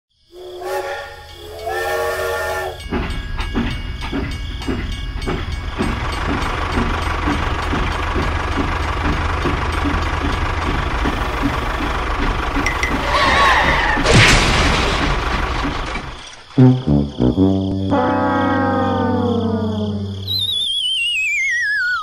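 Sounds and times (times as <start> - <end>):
toy train whistle: 0.3 - 2.9
toy train chuffing: 0.3 - 14.0.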